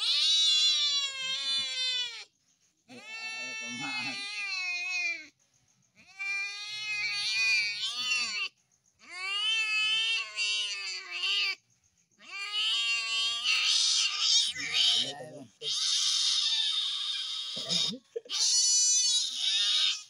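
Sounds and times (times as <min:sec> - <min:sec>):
cat yowling in distress: 0:00.0 - 0:02.2, 0:06.0 - 0:11.6, 0:12.2 - 0:20.0.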